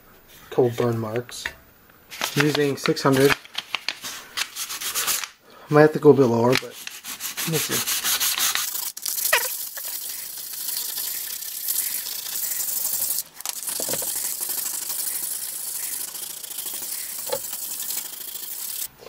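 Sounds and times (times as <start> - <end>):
sandpaper rubbing on sheet steel: 4.5 - 5.3, 6.7 - 18.9.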